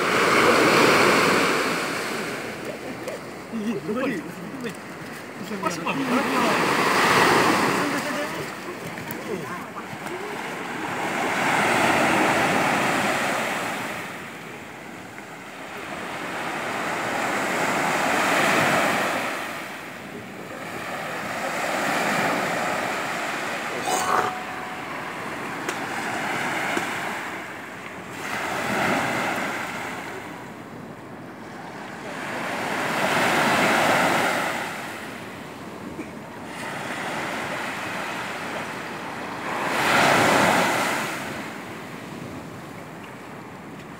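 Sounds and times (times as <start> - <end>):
surf breaking on beach: 5.6 - 14.2.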